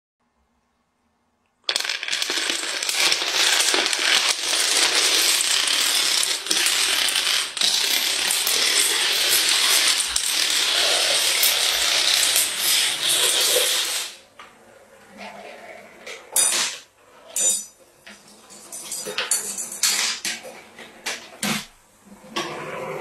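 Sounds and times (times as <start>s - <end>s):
dominoes toppling: 1.6s - 14.2s.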